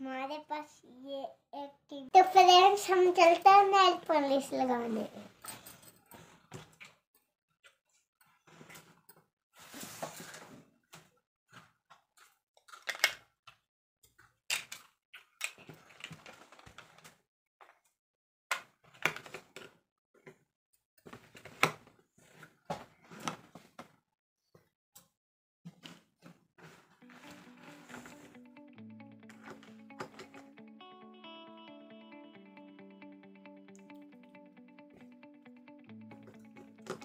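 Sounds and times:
plastic toy pieces clicking on table: 12.7 - 13.2, 14.5 - 15.6.

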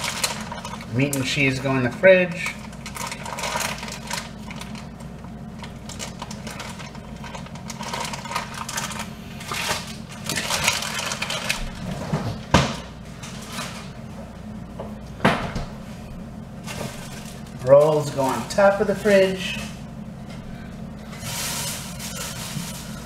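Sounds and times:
food packages rustling: 0.0 - 12.5, 16.6 - 19.8, 21.0 - 23.0
refrigerator hum: 0.0 - 23.0.

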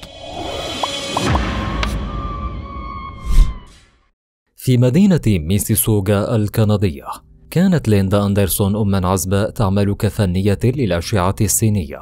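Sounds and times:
rising whoosh: 0.0 - 3.8
deep low hit: 0.8 - 3.2.

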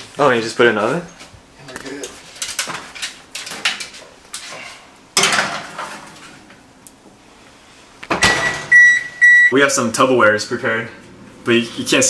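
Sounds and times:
baking pan clattering on oven rack: 5.2 - 6.1
oven door shutting: 8.1 - 9.0
oven control panel beep: 8.2 - 9.6.

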